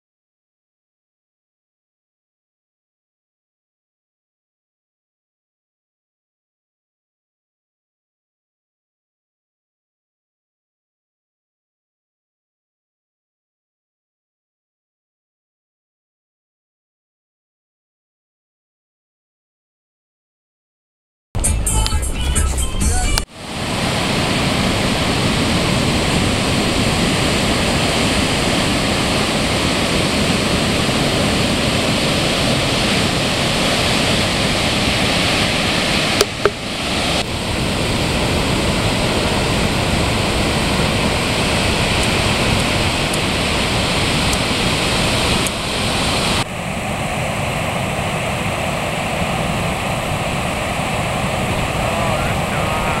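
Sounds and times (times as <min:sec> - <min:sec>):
ocean waves breaking on rocks: 0:23.3 - 0:53.0.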